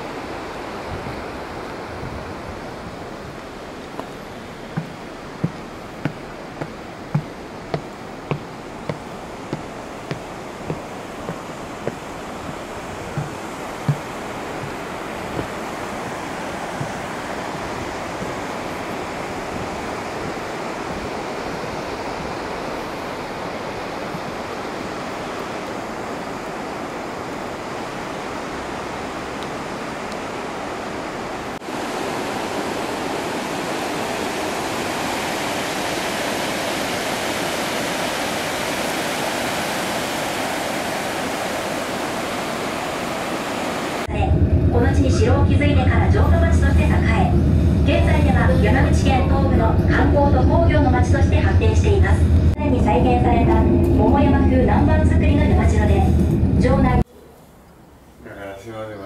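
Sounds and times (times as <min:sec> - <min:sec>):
river water rushing: 0:00.0 - 0:44.1
footsteps on wet wooden planks: 0:03.1 - 0:21.7.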